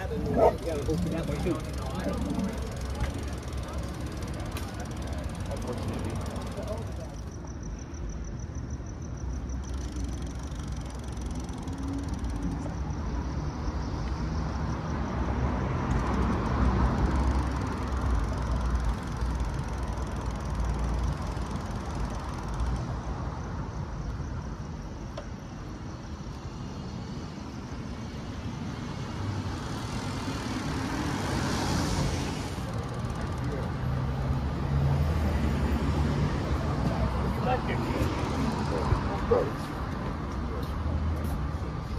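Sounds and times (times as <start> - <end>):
vehicle passing: 0.0 - 7.2, 29.0 - 41.9
city street traffic: 0.0 - 41.9.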